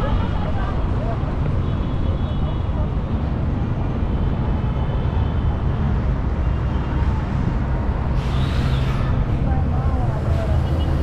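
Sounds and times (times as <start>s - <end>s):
faint voices of passers-by: 0.0s - 5.7s, 8.9s - 11.0s
road traffic rumble: 0.0s - 11.0s.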